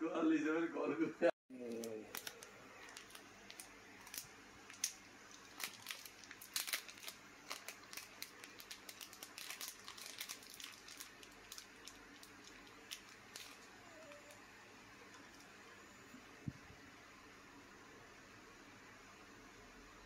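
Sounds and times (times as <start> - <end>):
plastic bag crinkling: 1.6 - 14.4, 15.0 - 15.6.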